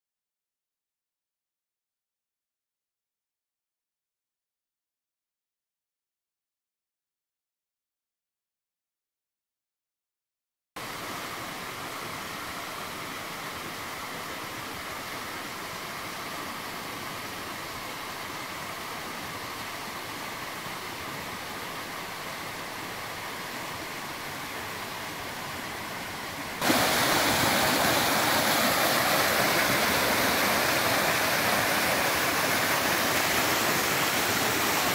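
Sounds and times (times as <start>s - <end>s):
waterfall rushing into a pool: 10.8s - 34.9s.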